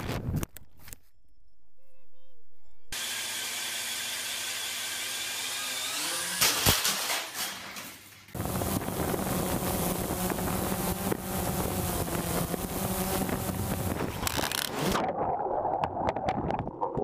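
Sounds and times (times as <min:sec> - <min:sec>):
drone propellers buzzing: 0:08.4 - 0:15.0.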